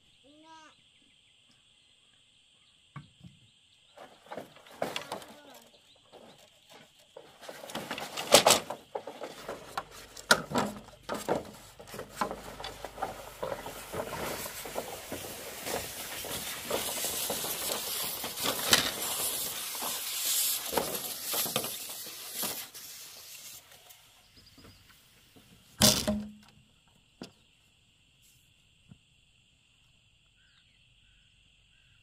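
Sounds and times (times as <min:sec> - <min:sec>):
poles scraping across dirt: 0:03.9 - 0:25.0.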